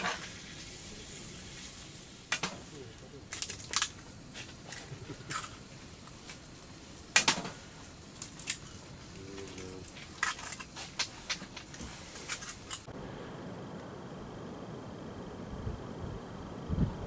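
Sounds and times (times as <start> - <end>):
steady outdoor hiss: 0.0 - 17.0.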